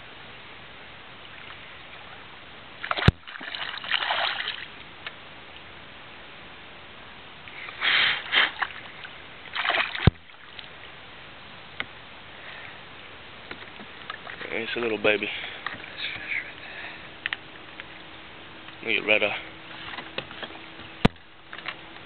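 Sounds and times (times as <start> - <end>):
fish splashing in water: 2.8 - 4.8, 7.6 - 10.6.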